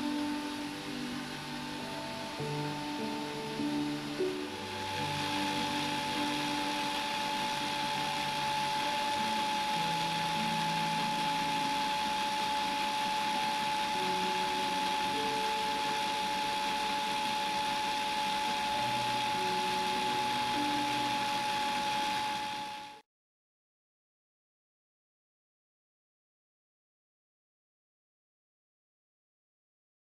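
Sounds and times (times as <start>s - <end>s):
small electric motor whining: 0.0s - 23.0s.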